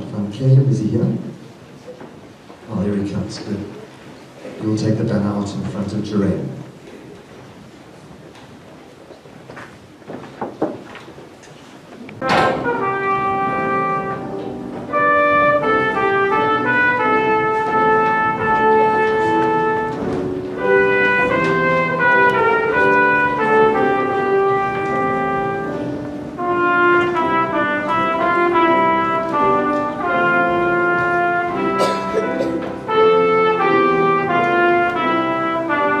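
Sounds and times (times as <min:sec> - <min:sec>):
marching band playing: 0:12.2 - 0:36.0.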